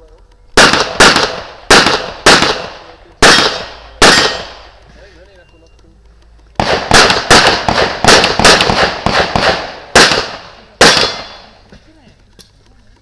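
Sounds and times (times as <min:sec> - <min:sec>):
pistol shots with echo: 0:00.6 - 0:04.8, 0:06.6 - 0:11.6.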